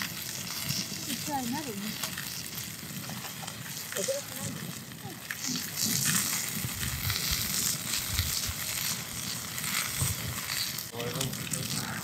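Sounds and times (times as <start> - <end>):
campfire crackling and hissing: 0.0 - 12.0
meat sizzling on a grill: 0.0 - 12.0.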